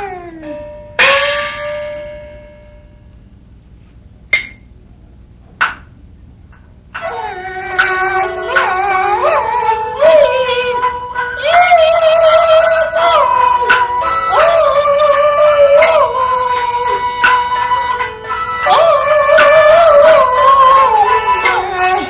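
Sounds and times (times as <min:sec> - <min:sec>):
opera instrumental ensemble: 0:07.0 - 0:22.0.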